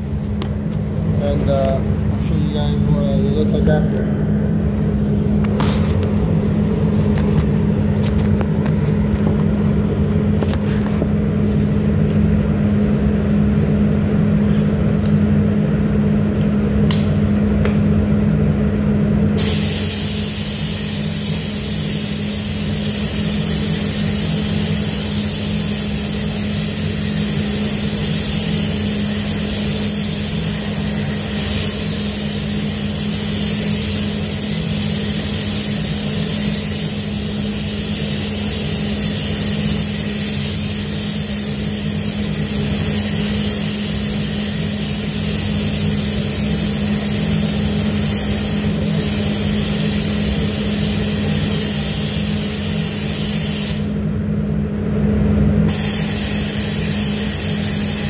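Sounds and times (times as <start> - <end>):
ventilation low hum: 0.0 - 58.0
hiss of air: 19.4 - 54.0, 55.7 - 58.0.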